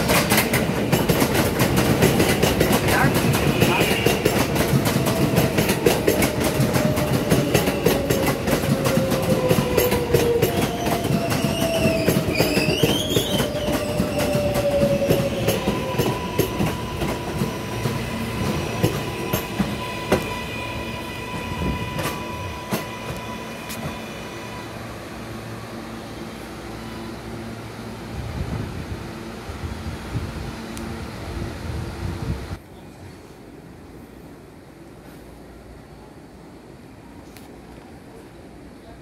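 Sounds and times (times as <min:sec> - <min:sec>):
train wheels clattering over joints: 0:00.0 - 0:20.3
wheel squeal: 0:10.2 - 0:17.2.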